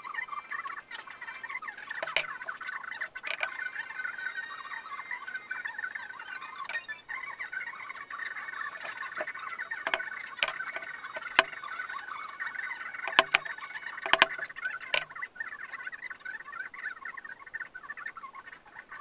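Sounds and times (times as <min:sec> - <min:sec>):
steady high chirping: 0:00.0 - 0:19.0.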